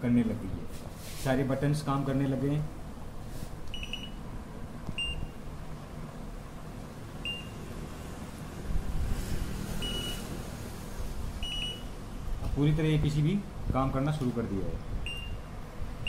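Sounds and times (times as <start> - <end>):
short high beeps: 3.7 - 4.2, 9.8 - 10.2, 11.4 - 11.8.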